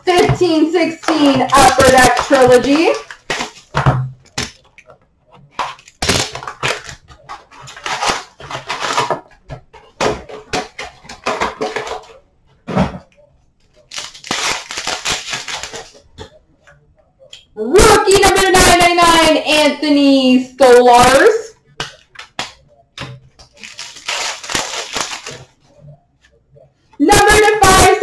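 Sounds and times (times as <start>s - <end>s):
foil card pack crinkling: 13.9s - 16.0s, 23.5s - 25.5s.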